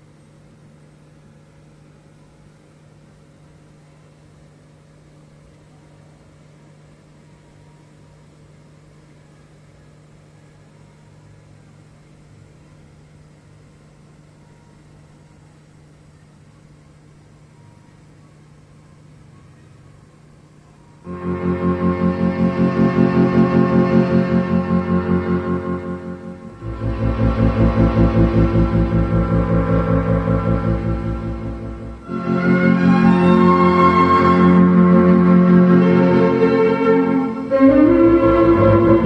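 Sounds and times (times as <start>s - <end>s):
tape hiss: 0.0s - 39.0s
low hum: 21.0s - 39.0s.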